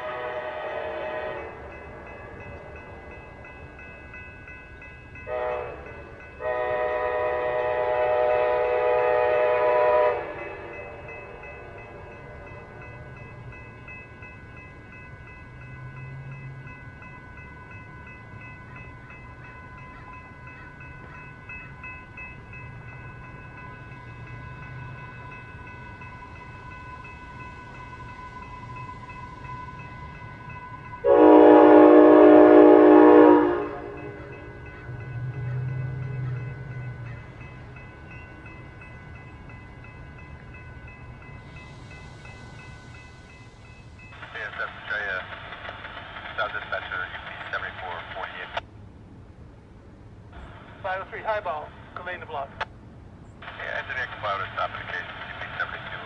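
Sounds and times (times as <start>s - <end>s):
train air horn blasts: 0.0s - 1.6s, 5.3s - 10.8s, 31.0s - 34.4s
train rumble: 0.0s - 56.0s
steady ringing tone: 10.7s - 31.2s.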